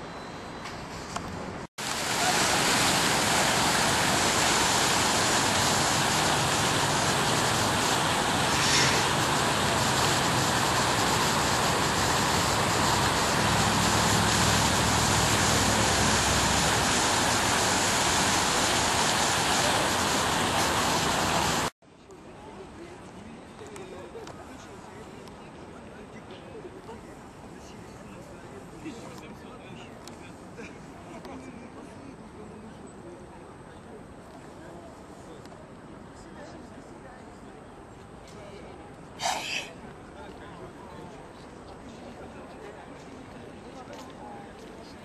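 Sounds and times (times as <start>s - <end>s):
city background noise: 0.0s - 45.0s
fountain water splashing: 1.8s - 21.7s.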